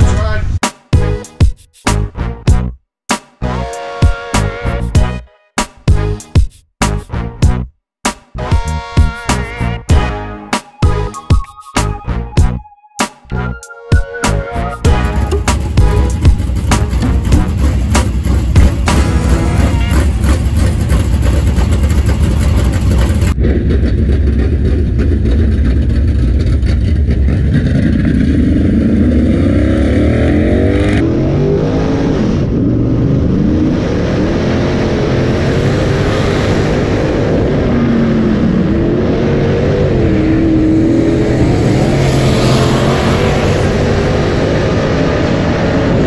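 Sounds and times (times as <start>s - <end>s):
race car engine revving: 14.7s - 46.0s.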